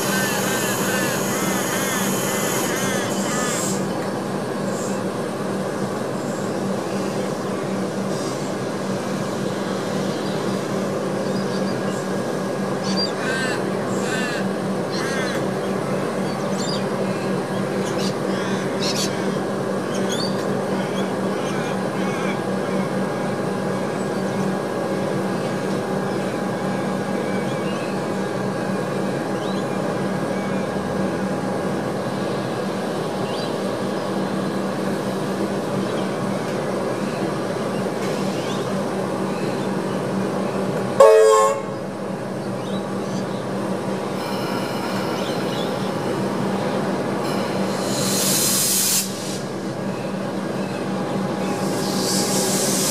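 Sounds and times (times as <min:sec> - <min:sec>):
electric train humming: 0:00.0 - 0:52.9
train horn blast: 0:41.0 - 0:41.9.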